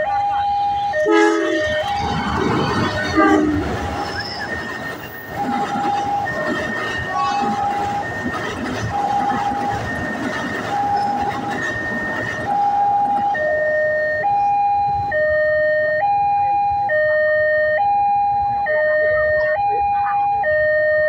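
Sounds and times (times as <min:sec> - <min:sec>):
train rumbling on rails: 0:00.0 - 0:16.2
two-tone crossing alarm: 0:00.0 - 0:21.0.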